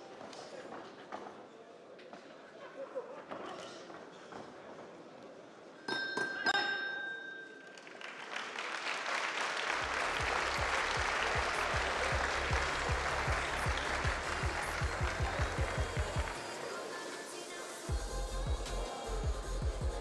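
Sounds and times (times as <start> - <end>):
boxing ring bell: 5.9 - 7.7
crowd cheering and applauding: 7.8 - 20.0
music with steady beat: 9.8 - 20.0.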